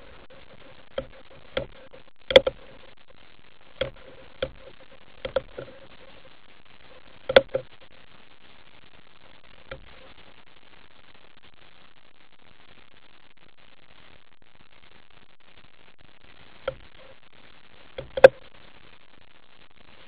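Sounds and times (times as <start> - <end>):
steady hiss: 0.0 - 20.0
underwater clicks and knocks: 0.1 - 2.8, 3.8 - 5.8, 7.2 - 7.7, 9.7 - 10.0, 16.7 - 16.9, 18.0 - 18.4.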